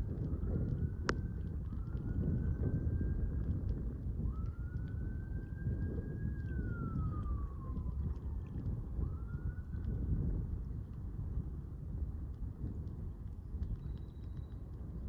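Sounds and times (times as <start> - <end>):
faint siren wailing: 0.0 - 12.0
wind buffeting microphone: 0.0 - 15.0.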